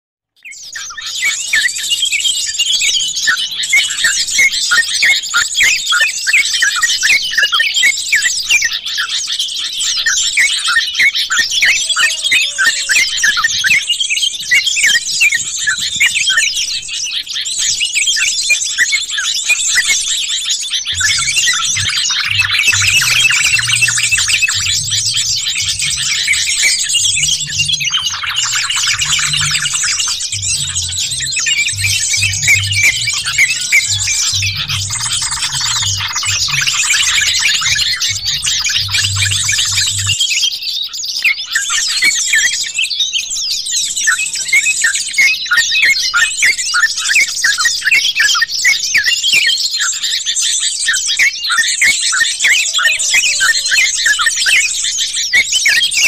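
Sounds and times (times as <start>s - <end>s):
chorus of bird calls: 0.4s - 56.0s
low pulsing thrum: 21.0s - 37.0s, 37.6s - 40.2s.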